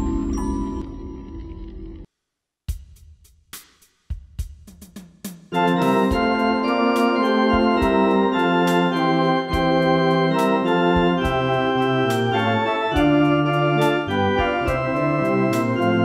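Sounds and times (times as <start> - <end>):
rhythm section beat: 2.7 - 16.0
electronic organ playing hymn chords: 5.6 - 16.0.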